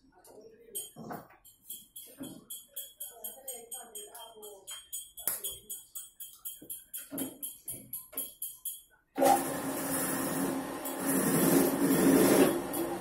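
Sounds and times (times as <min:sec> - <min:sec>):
drill press humming: 0:09.2 - 0:13.0.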